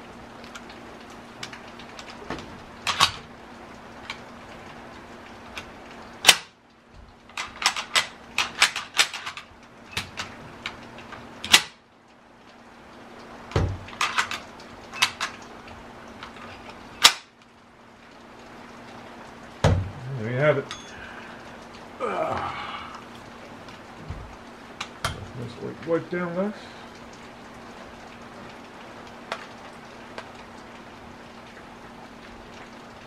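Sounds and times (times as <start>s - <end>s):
rifle metal clicks and clacks: 7.3s - 10.3s.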